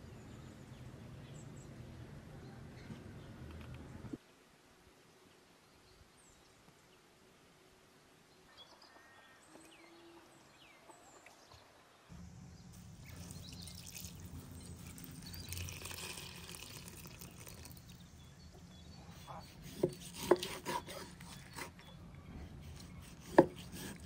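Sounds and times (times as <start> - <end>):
faint bird calls: 8.5 - 11.4, 18.5 - 23.4
water pouring into a bowl: 13.0 - 18.1.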